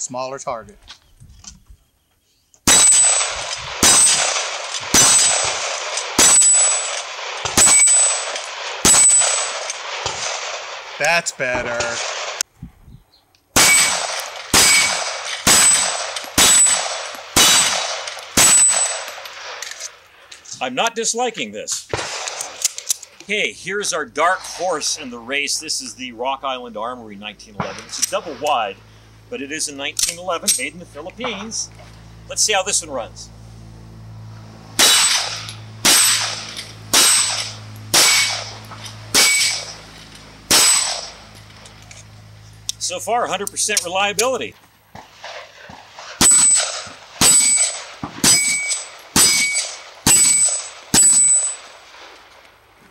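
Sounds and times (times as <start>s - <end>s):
pistol shots: 2.6s - 12.4s, 13.5s - 19.8s, 21.9s - 23.0s, 27.6s - 28.6s, 34.8s - 41.7s, 44.9s - 52.2s
steel plate target clanging: 2.7s - 10.2s, 13.6s - 19.9s, 29.6s - 31.7s, 34.8s - 42.2s, 45.2s - 51.8s.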